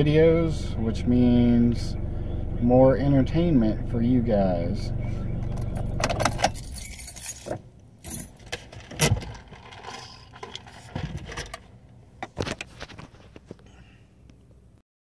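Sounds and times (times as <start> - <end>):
low steady hum: 0.0 - 14.8
jangling rattles and clicks: 5.4 - 12.4.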